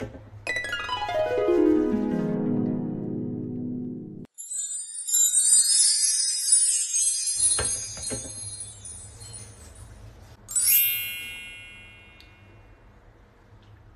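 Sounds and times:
high tinkling chime music: 0:04.2 - 0:12.8
bright chime ringing: 0:04.3 - 0:09.8, 0:10.5 - 0:12.8.

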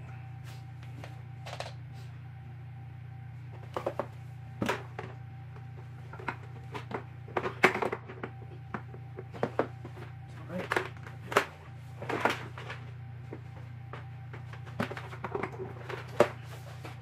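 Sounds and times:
steady low hum: 0:00.0 - 0:17.0
plastic parts knocking: 0:03.6 - 0:05.2, 0:06.0 - 0:17.0.

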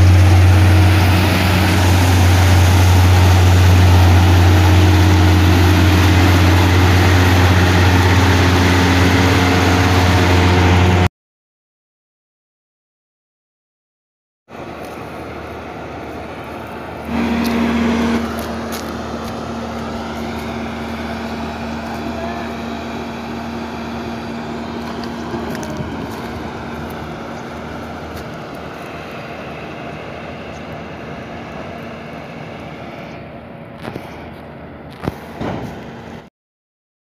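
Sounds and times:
combine harvester running: 0:00.0 - 0:11.1, 0:14.5 - 0:36.3.

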